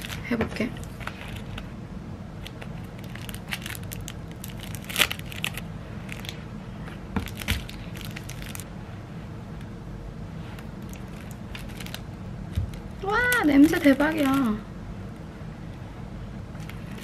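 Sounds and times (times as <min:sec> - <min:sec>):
packaging crinkling and tearing: 0:00.0 - 0:01.7, 0:02.4 - 0:06.4, 0:07.2 - 0:08.7, 0:10.8 - 0:14.6, 0:16.6 - 0:17.0
steady low hum: 0:00.0 - 0:17.0.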